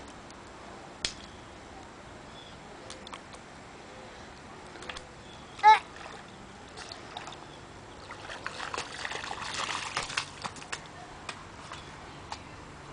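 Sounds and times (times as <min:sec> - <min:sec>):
child's shoes splashing through puddle: 0:08.1 - 0:11.0.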